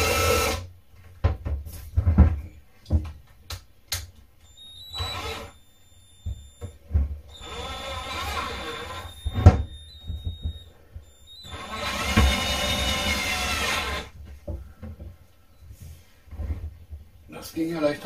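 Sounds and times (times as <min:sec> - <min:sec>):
cordless drill driving screws: 0:00.0 - 0:00.6, 0:04.5 - 0:06.7, 0:07.3 - 0:14.1.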